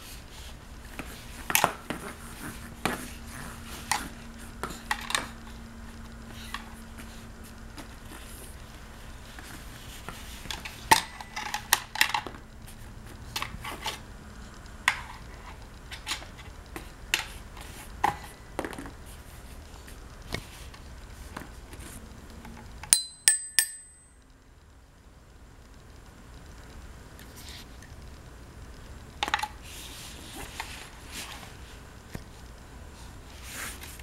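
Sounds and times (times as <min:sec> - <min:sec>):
toy xylophone notes: 0:23.0 - 0:24.1.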